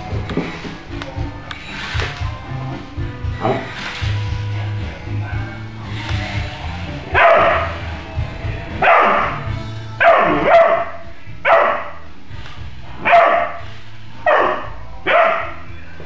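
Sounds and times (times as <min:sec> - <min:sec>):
background music: 0:00.0 - 0:16.0
puppy barking: 0:07.1 - 0:07.8, 0:08.8 - 0:09.4, 0:10.0 - 0:12.0, 0:13.0 - 0:15.6.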